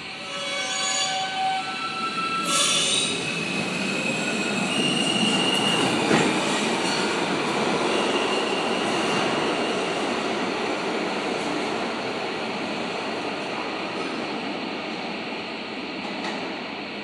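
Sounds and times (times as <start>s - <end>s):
subway train rumbling on rails: 0.0s - 17.0s
high wheel squeal: 0.2s - 3.3s.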